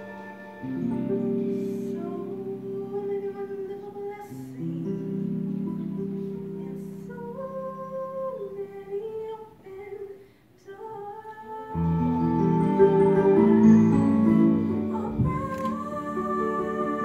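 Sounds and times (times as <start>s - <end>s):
girl singing: 1.5s - 17.0s.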